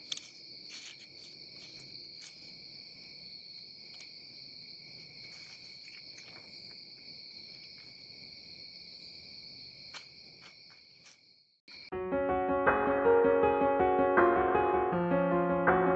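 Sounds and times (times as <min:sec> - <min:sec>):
crickets trilling: 0:00.0 - 0:11.9.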